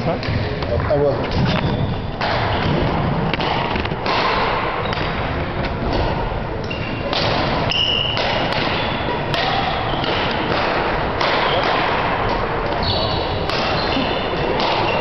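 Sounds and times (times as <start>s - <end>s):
noisy background: 0.0s - 15.0s
shuttlecock hit thuds: 2.2s - 6.3s, 7.0s - 12.8s, 13.4s - 15.0s.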